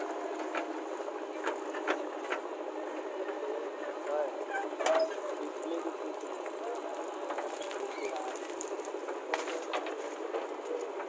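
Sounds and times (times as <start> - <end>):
backhoe diesel engine and hydraulics: 0.0 - 11.0
bucket scooping and spilling soil: 5.6 - 9.7.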